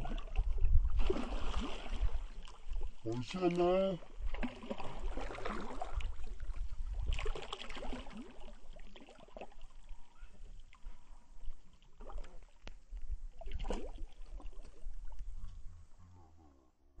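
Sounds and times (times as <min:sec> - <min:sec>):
fish splashing in water: 0:00.0 - 0:03.0, 0:04.2 - 0:10.8, 0:13.4 - 0:15.2.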